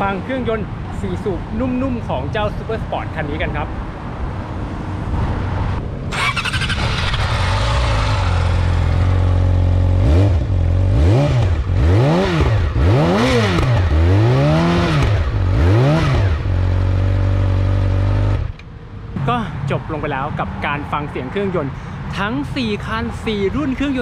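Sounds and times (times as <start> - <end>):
motorcycle engine idling and revving: 5.0 - 20.2.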